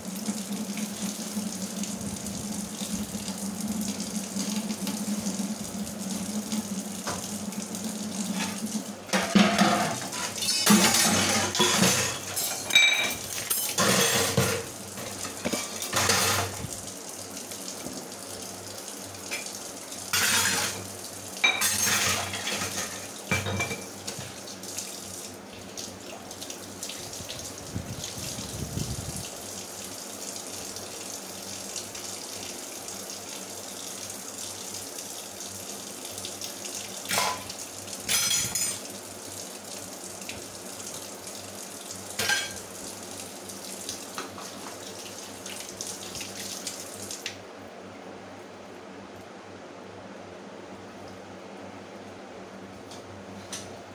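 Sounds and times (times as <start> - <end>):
pots and plates clattering: 8.3 - 16.6, 20.2 - 20.8, 21.4 - 23.9, 37.1 - 37.5, 38.1 - 38.8, 42.2 - 42.6.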